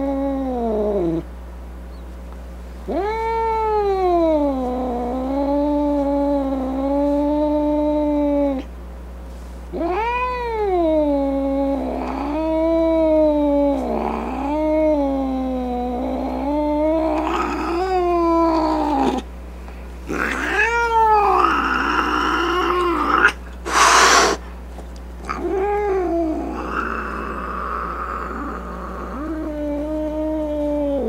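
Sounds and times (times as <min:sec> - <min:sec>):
cat yowling: 0:00.0 - 0:01.2, 0:09.8 - 0:19.2, 0:20.1 - 0:24.4, 0:25.2 - 0:31.0.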